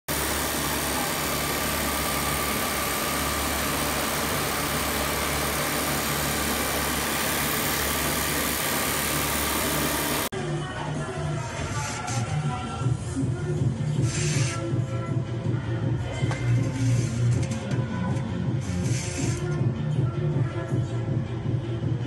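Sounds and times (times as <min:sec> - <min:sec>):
sewing machine whirring: 0:00.1 - 0:10.3.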